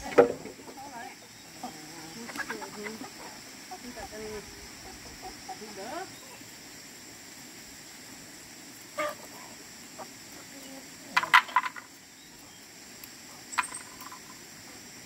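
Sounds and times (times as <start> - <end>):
chickens clucking: 0.0 - 6.8, 8.0 - 15.0.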